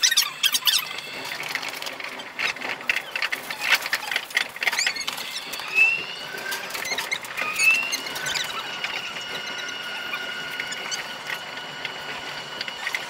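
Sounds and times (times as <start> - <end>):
rapid chatter of clicks and squeaks: 0.0 - 13.0
short rising whistles: 4.8 - 11.4.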